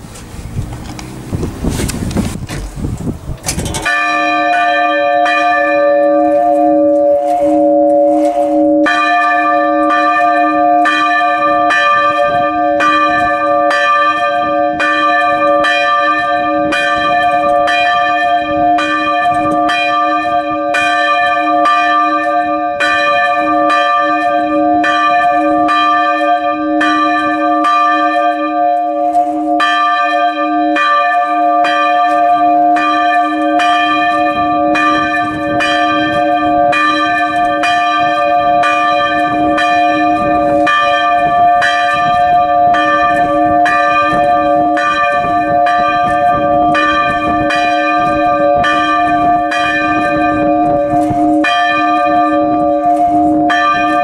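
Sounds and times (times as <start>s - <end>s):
church bell ringing: 3.6s - 54.0s.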